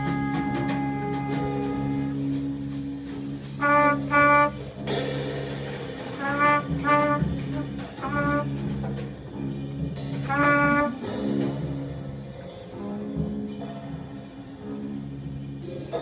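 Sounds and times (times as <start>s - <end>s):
trumpet playing clipped notes: 0.0s - 2.7s, 3.5s - 4.9s, 6.2s - 8.8s, 10.2s - 11.3s
clarinet: 0.0s - 4.7s, 6.2s - 8.9s, 10.1s - 11.6s
drum kit: 0.0s - 16.0s.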